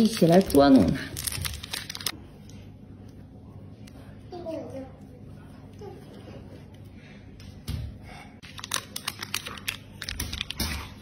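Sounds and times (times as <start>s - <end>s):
plastic candy package crinkling: 0.0s - 2.2s, 8.4s - 11.0s.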